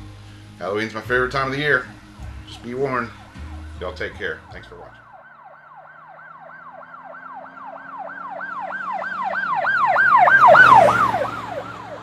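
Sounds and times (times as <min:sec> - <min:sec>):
emergency siren yelping: 0:02.9 - 0:12.0.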